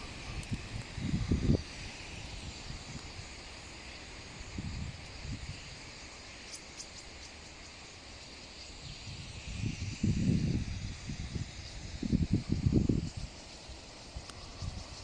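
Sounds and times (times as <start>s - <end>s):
wind buffeting microphone: 0.0s - 3.4s, 4.3s - 5.9s, 8.8s - 15.0s.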